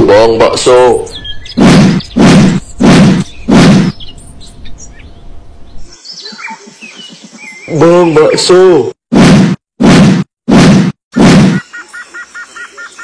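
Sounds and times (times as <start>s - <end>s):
loud bursts of noise: 1.6s - 4.0s
faint high bird chirps: 3.2s - 8.4s.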